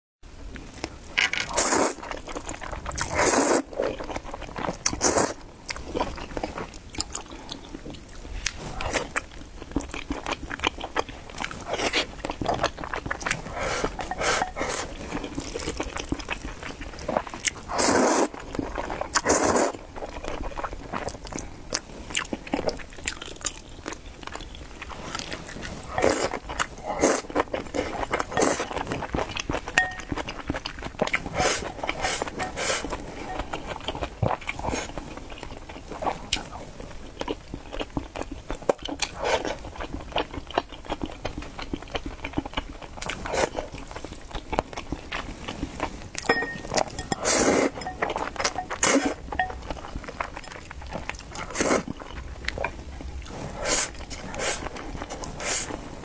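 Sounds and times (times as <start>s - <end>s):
wet chewing: 0.6s - 55.8s
person slurping noodles: 1.5s - 2.1s, 3.0s - 3.8s, 5.0s - 5.4s, 13.3s - 15.6s, 17.7s - 18.4s, 19.1s - 19.8s, 25.0s - 28.8s, 31.2s - 33.4s, 46.5s - 48.0s, 48.8s - 49.3s, 51.4s - 51.9s, 53.2s - 55.8s.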